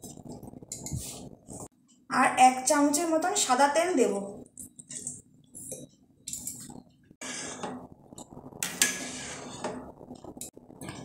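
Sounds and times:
water boiling in a pot: 0:03.4 - 0:11.0
metal ladle scraping a pot: 0:08.6 - 0:10.0.

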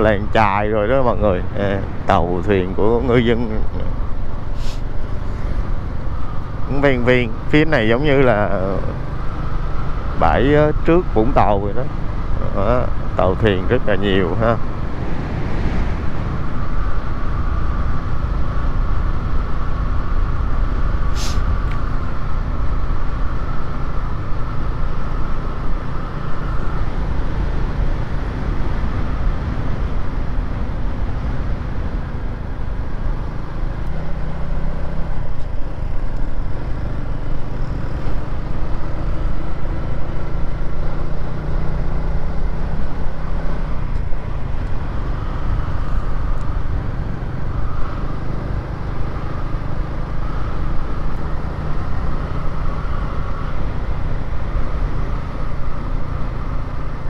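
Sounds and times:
wind rumble on microphone: 0:09.7 - 0:34.2.

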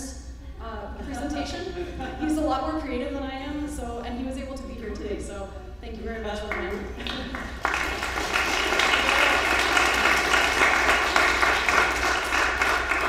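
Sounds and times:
audience applauding: 0:07.0 - 0:13.0.

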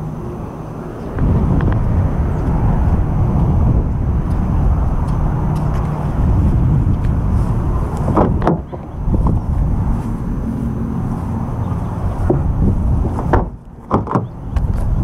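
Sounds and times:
wind rumbling on microphone: 0:00.0 - 0:15.0
handling knock: 0:08.1 - 0:08.9, 0:13.2 - 0:14.3.

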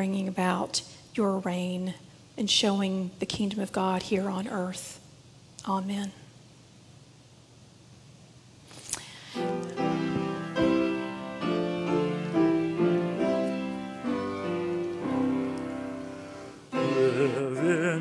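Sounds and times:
piano playing chords: 0:09.3 - 0:18.0
voices singing with vibrato: 0:16.7 - 0:18.0.

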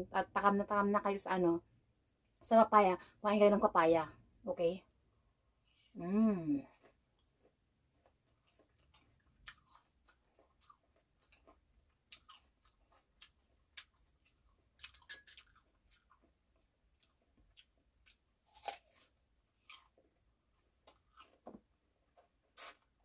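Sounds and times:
crunchy fruit chewing: 0:06.7 - 0:23.0
bite into crisp fruit: 0:17.0 - 0:20.0, 0:22.4 - 0:23.0.

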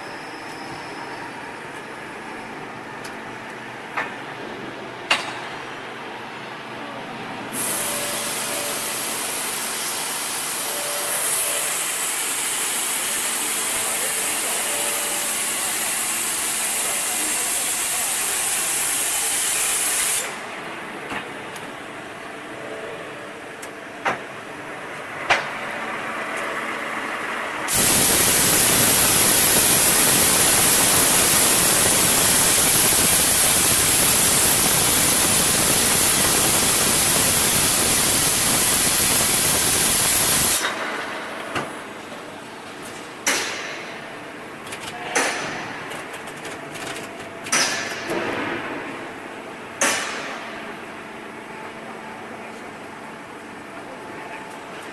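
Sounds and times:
loud steady hiss: 0:07.5 - 0:20.5, 0:27.6 - 0:40.8
machine running: 0:25.2 - 0:41.6.

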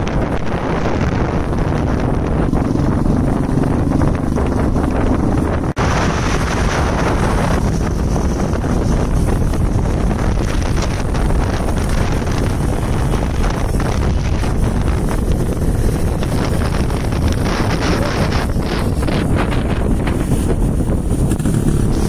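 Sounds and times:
motorcycle engines running: 0:00.0 - 0:22.0
wind buffeting microphone: 0:00.0 - 0:22.0.

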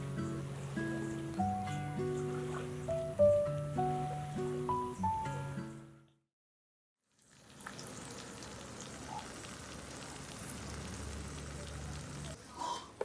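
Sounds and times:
eggs sizzling in oil: 0:07.0 - 0:12.5.

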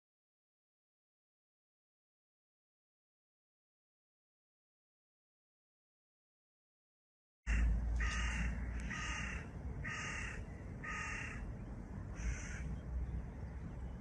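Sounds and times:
bird harsh calls: 0:07.5 - 0:13.5.

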